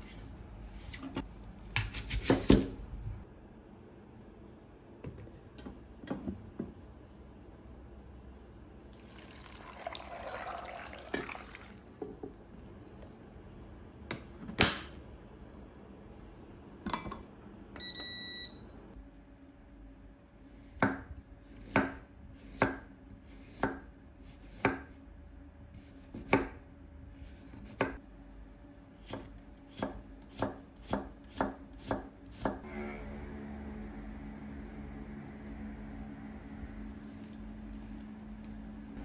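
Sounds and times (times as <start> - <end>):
knife chopping on wooden board: 1.7 - 2.8, 20.8 - 24.9, 25.8 - 26.6, 27.4 - 28.0, 29.0 - 32.6
rice cooker beep: 17.8 - 18.6.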